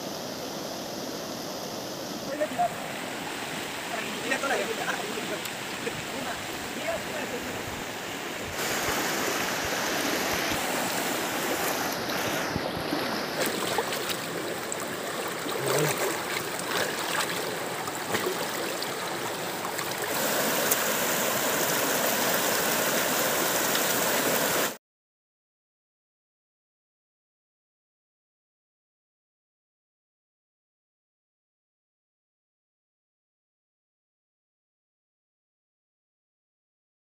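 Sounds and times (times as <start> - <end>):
river rushing over stones: 0.0 - 24.8.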